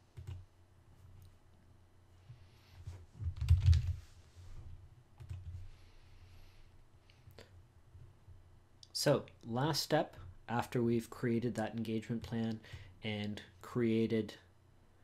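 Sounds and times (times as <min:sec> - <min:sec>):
keyboard typing: 0:00.1 - 0:00.4, 0:03.2 - 0:04.0, 0:05.2 - 0:05.6.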